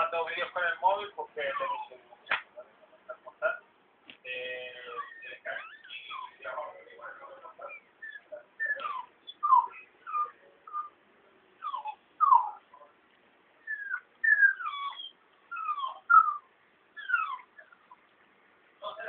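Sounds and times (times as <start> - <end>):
newborn puppies whimpering: 1.4 - 2.0, 4.8 - 11.0, 11.6 - 12.8, 13.6 - 18.0.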